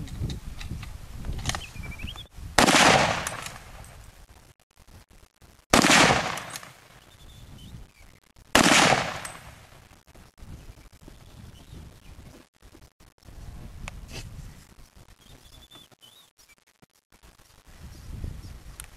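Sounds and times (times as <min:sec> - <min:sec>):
rifle shots: 0:02.6 - 0:03.9, 0:05.7 - 0:06.9, 0:08.6 - 0:09.8.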